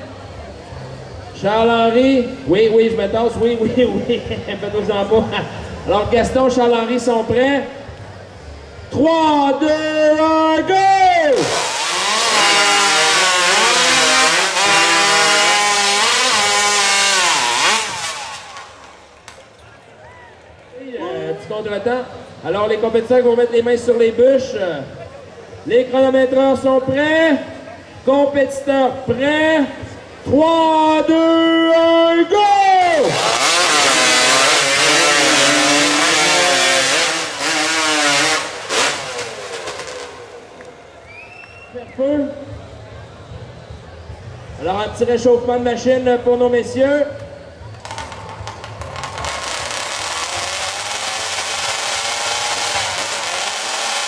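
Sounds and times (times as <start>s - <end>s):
chainsaws cutting timber: 11.3s - 19.1s, 32.8s - 40.7s, 47.9s - 54.0s.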